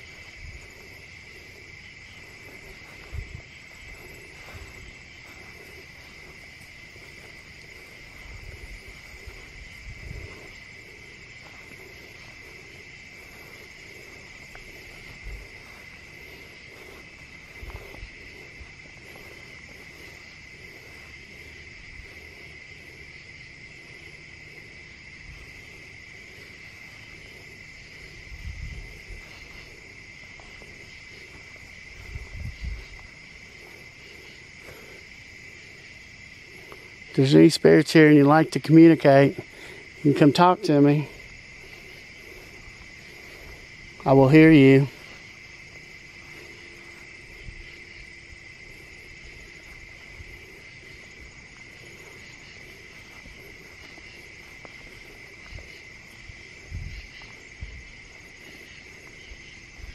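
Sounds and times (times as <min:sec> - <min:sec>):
night insects trilling: 0:00.0 - 0:59.9.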